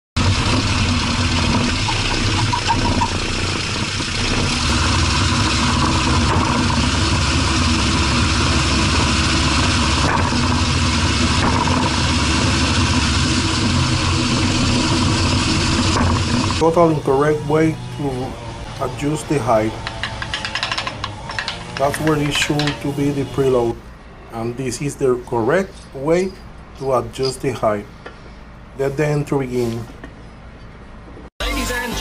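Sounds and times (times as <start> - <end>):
suspension knocks: 0.2 - 23.4
road and tyre noise: 0.2 - 31.3.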